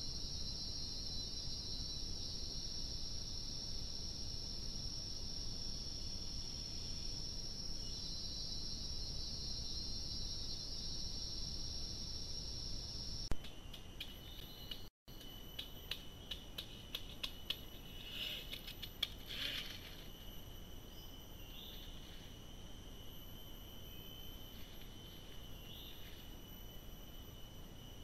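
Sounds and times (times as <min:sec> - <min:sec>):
insects buzzing: 0:00.0 - 0:28.0.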